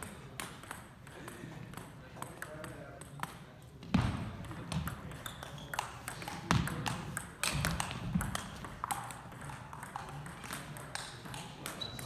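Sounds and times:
table tennis ball clicking: 0.0 - 3.5, 4.5 - 12.0.

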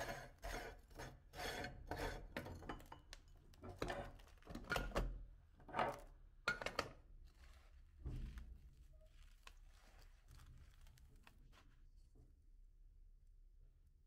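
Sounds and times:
hands rustling in powder: 7.2 - 12.0.

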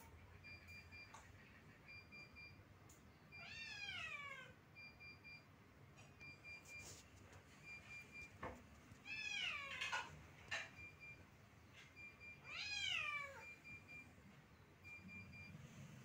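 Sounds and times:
cat meowing: 3.3 - 4.6, 9.0 - 10.1, 12.4 - 13.6
faint high pulsing beep: 13.1 - 16.0.

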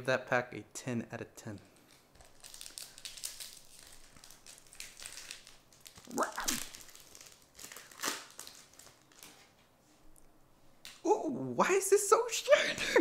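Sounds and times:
foil wrapper crinkling: 1.8 - 9.5
falling voice-like sound: 6.1 - 6.7.

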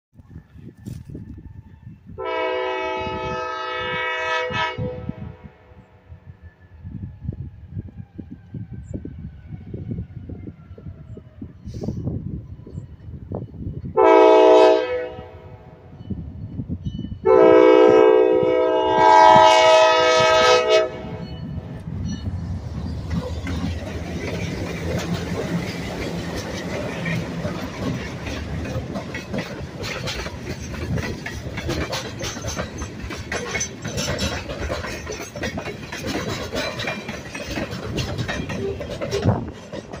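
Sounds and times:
locomotive horn blast: 2.2 - 5.8, 14.0 - 15.8, 17.2 - 21.2
freight cars rolling on rails: 19.4 - 40.0.

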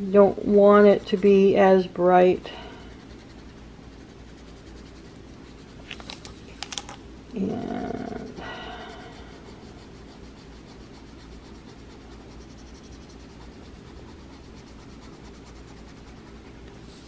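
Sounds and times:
low steady hum: 0.0 - 17.0
pencil scratching on paper: 2.5 - 5.9, 8.7 - 16.7.

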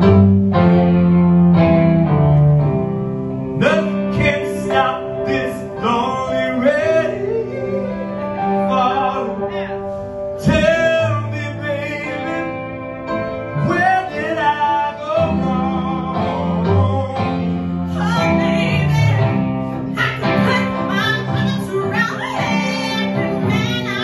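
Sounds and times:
keyboard accompaniment: 0.0 - 24.0
man singing soul: 3.5 - 19.5.

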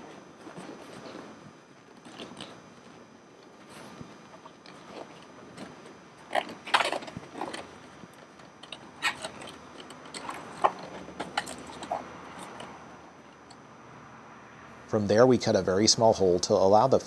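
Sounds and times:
leather scuffing and creaking: 0.0 - 12.8.

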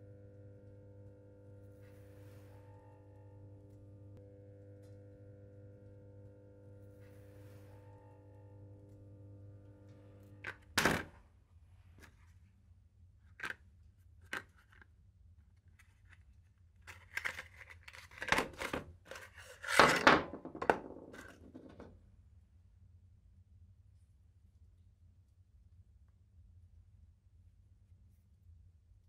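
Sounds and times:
steady hum: 0.0 - 11.2.

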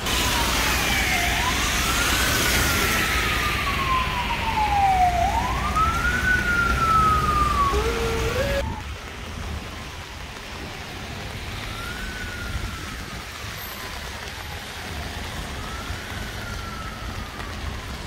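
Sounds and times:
siren wailing: 0.0 - 8.9, 15.2 - 18.0
tyres hissing on wet road: 0.0 - 18.0.

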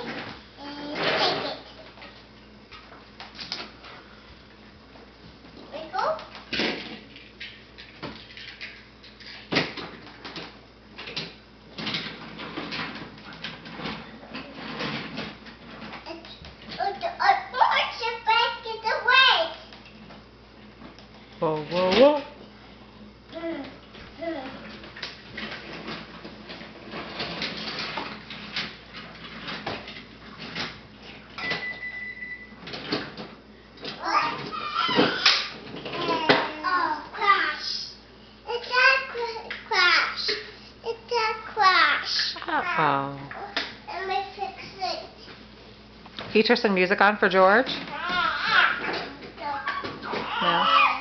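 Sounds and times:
high beep: 31.4 - 32.5.

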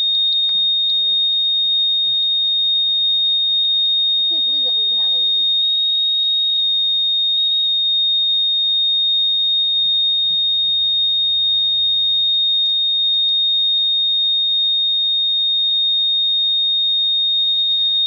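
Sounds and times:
high-pitched alarm tone: 0.0 - 13.6, 17.2 - 18.0.

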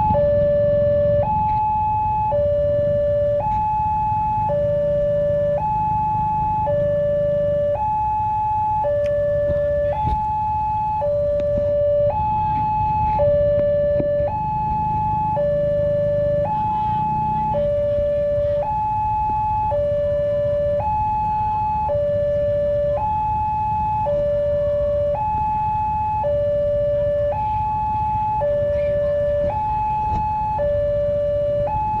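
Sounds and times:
idling engines rumbling: 0.0 - 32.0
two-tone crossing alarm: 0.0 - 32.0.

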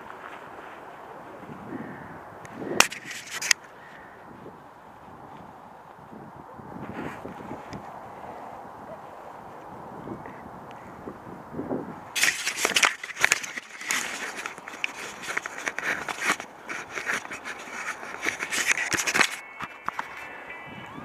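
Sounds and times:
camera handling scraping and crackling: 2.8 - 3.7, 12.2 - 20.5.

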